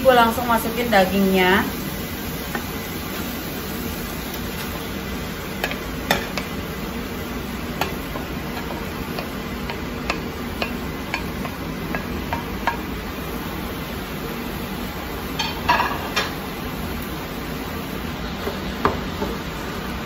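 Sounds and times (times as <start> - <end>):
meat sizzling in hot oil: 0.0 - 20.0
wooden spatula tapping cutting board: 7.8 - 12.8.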